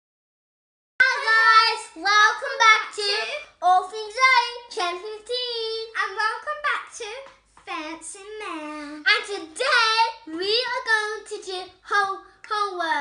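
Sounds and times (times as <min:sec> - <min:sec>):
child singing: 0:01.0 - 0:06.0.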